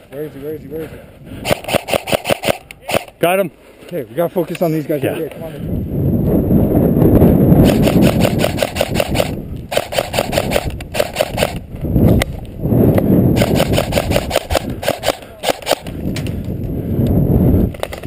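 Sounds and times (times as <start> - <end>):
airsoft rifle rapid shots: 1.4 - 3.2, 7.6 - 11.6, 13.4 - 15.9.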